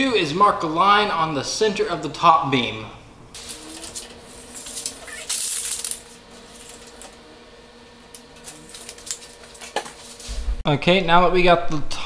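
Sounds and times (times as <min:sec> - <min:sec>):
tape measure rattling and clicking: 0:03.4 - 0:07.1.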